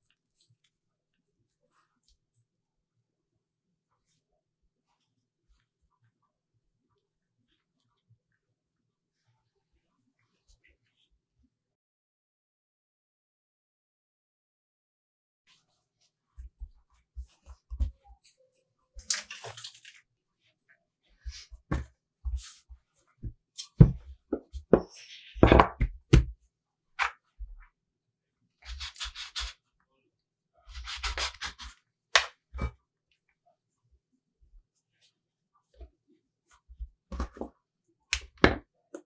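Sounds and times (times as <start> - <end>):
dough thumping on wooden board: 25.4 - 26.4
rubbing and scraping: 28.6 - 29.7.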